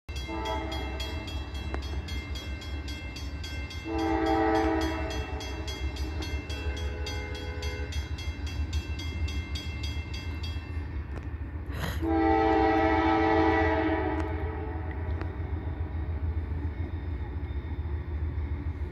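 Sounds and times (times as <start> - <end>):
crossing signal bell dinging: 0.1 - 11.2
train horn blasts: 0.2 - 1.2, 3.8 - 8.0, 12.0 - 15.3.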